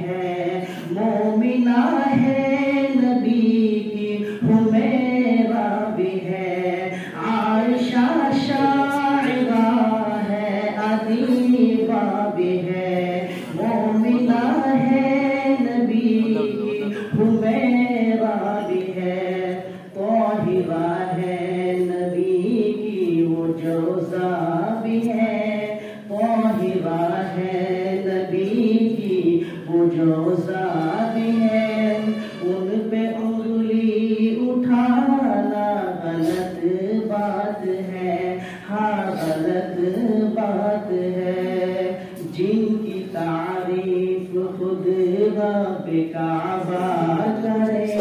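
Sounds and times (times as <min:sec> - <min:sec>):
man singing unaccompanied: 0:01.0 - 0:35.6.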